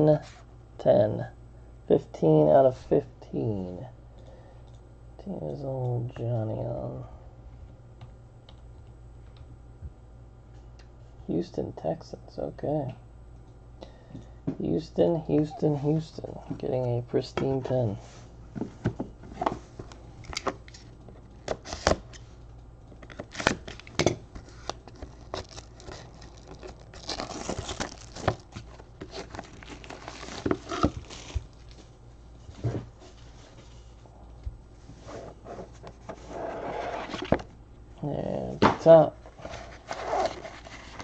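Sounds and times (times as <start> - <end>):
plastic wrap crinkling and tearing: 24.5 - 31.8.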